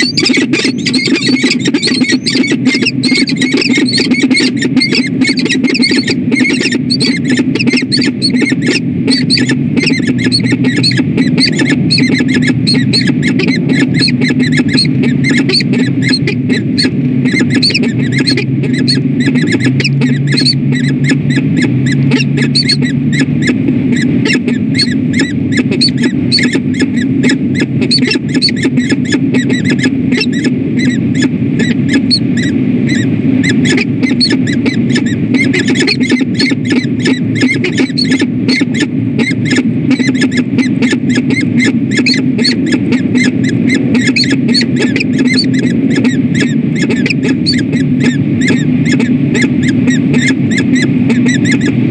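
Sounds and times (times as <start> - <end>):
electrical hum: 0.0 - 51.9
falcons chirping: 0.0 - 51.9.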